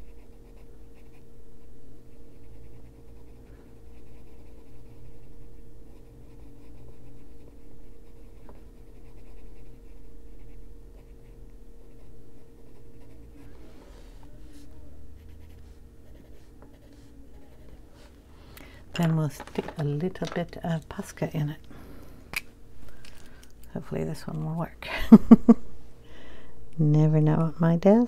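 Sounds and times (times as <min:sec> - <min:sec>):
faint steady hum: 0:00.0 - 0:28.0
pencil shading on paper: 0:02.1 - 0:17.9.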